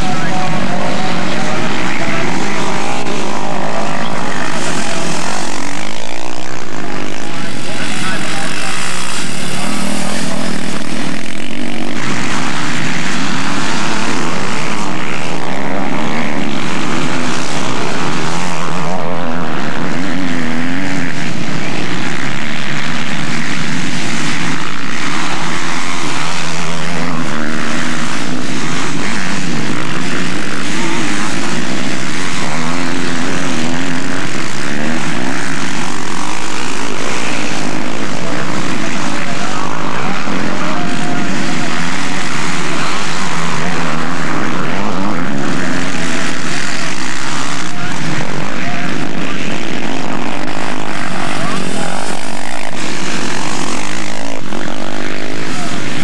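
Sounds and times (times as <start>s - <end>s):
motorcycle engines revving: 0.0s - 56.0s.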